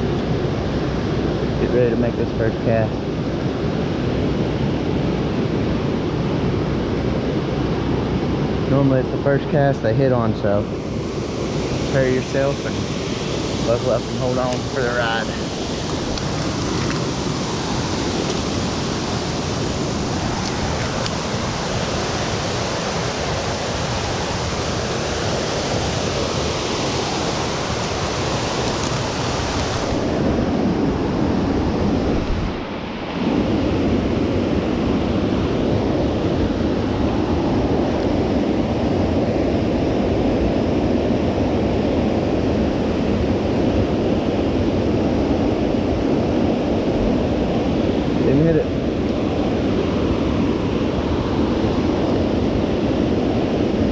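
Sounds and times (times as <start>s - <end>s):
loud rushing noise: 10.4s - 36.1s.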